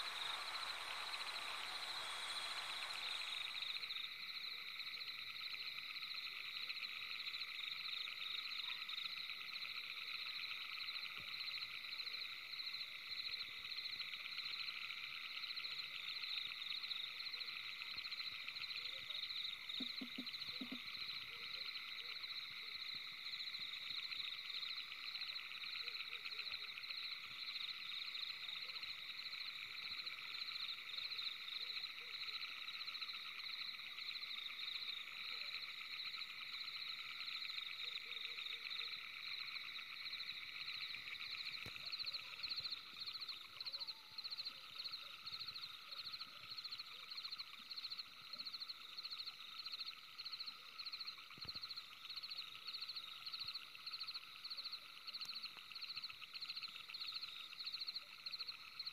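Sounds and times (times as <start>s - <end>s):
chorus of trilling animal calls: 0.0s - 3.7s.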